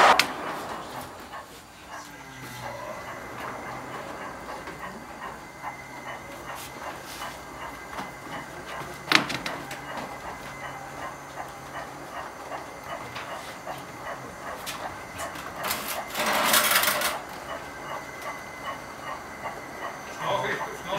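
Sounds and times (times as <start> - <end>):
low hum: 0.0 - 20.9
model train rolling on track: 0.0 - 20.9.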